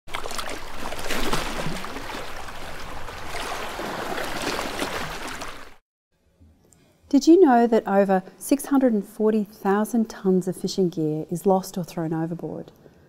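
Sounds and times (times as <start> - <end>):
rushing water: 0.1 - 5.8.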